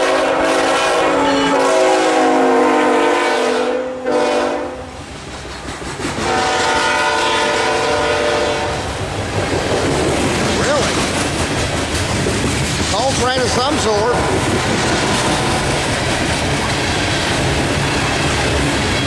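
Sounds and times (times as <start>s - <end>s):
locomotive air horn chord: 0.0s - 5.0s, 6.2s - 8.9s
train wheels clacking on rail joints: 5.0s - 7.0s, 8.8s - 19.0s.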